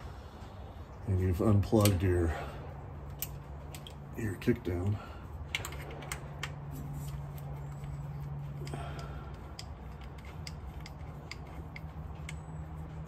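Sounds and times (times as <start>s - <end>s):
low hum: 0.0s - 13.0s
metallic clicks of hand tools: 1.7s - 2.0s, 3.1s - 4.0s, 8.6s - 12.5s.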